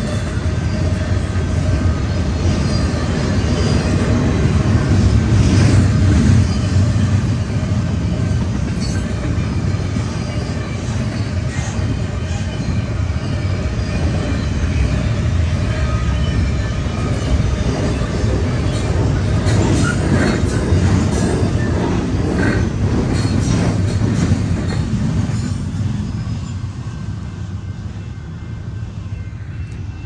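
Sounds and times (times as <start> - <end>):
train wheels rumbling on rail: 0.0 - 30.0.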